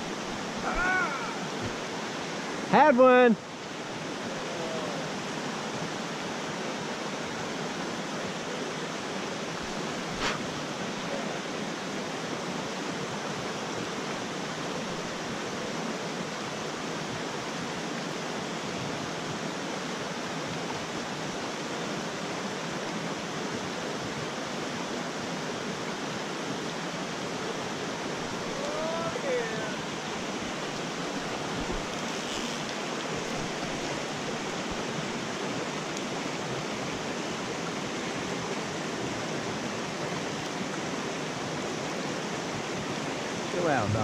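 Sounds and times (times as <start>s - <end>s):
creek rushing over cobbles: 27.1s - 44.0s.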